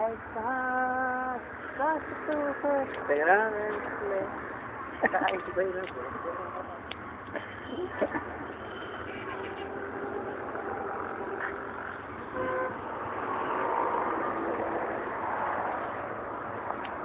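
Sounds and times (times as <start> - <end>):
road traffic: 0.0 - 17.0
vehicle horn: 7.6 - 11.6, 12.2 - 12.8.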